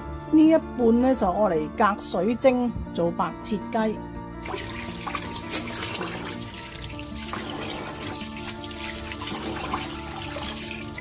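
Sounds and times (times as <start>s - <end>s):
tap water splashing on chicken: 4.5s - 11.0s.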